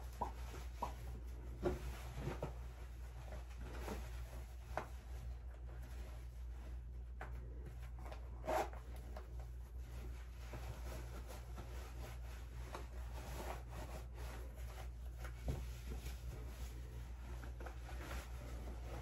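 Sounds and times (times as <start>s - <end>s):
clothing rustling: 0.0s - 19.0s
zipper pull: 8.0s - 9.0s.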